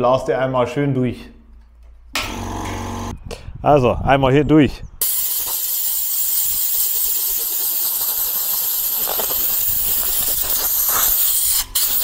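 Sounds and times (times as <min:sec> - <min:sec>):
compressed air blow gun hissing: 0:05.0 - 0:12.0.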